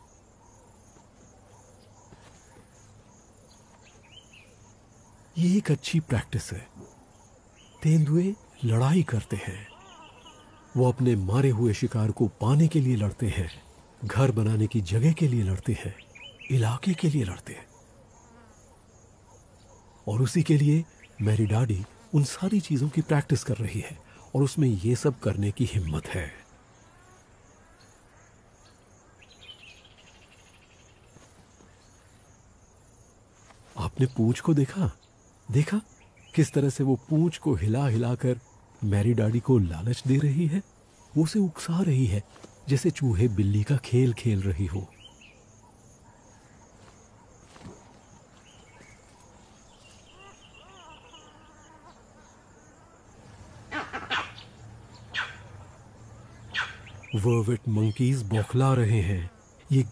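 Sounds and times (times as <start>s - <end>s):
faint insect chirring: 0.0s - 59.9s
low steady background hiss: 0.0s - 59.9s
monkey alarm barks: 17.6s - 21.3s, 44.9s - 52.0s, 53.6s - 57.2s.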